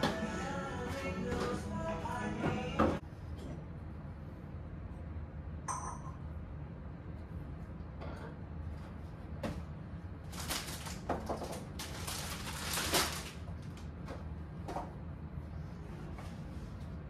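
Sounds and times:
plastic packaging crinkling: 10.3s - 13.8s.

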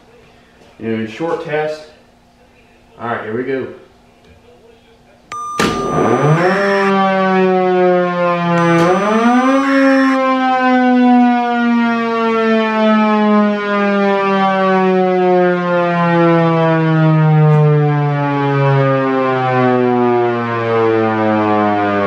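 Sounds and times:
siren winding down: 5.3s - 6.9s, 8.6s - 10.2s.

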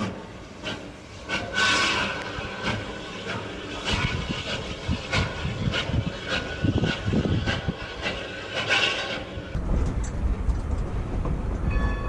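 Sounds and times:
steam hiss: 0.0s - 9.6s
steam locomotive chuffing: 0.0s - 9.9s.

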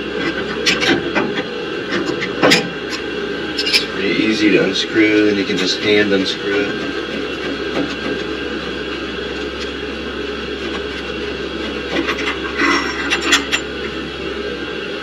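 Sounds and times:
steady drone: 0.0s - 15.0s
low hum: 6.4s - 15.0s
clicks and scrapes of handled pump: 10.6s - 13.6s.

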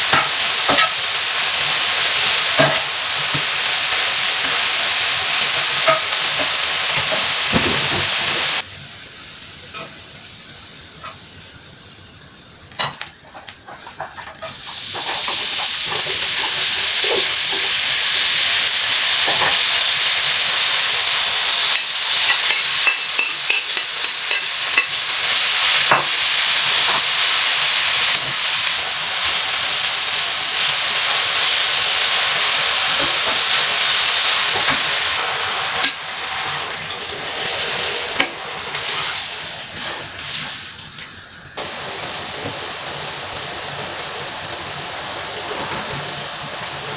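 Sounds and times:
vegetables sizzling in a frying pan: 0.0s - 46.9s.

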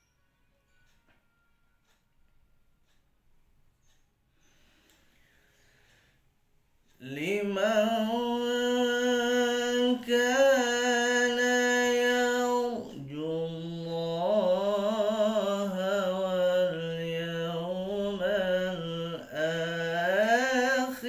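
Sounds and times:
man reciting melodically: 6.9s - 21.0s.

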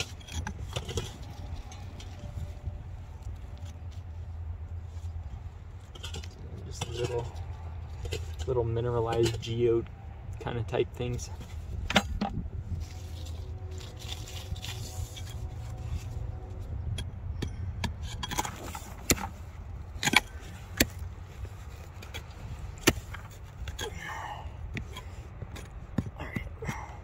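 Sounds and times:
steady low rumble: 0.0s - 27.0s
rock pick striking rock: 22.8s - 24.1s.

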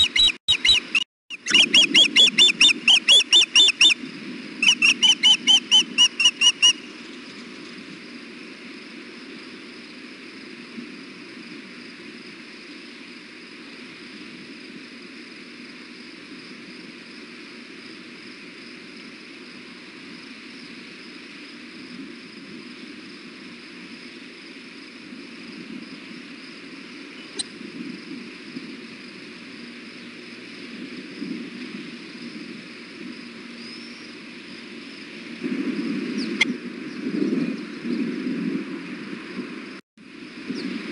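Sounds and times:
bird chirping calls: 0.0s - 4.0s, 4.6s - 7.4s.

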